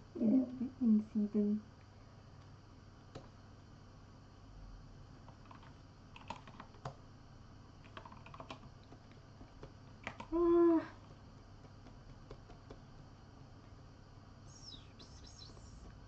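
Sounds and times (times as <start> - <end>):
low hum: 13.4 - 16.0.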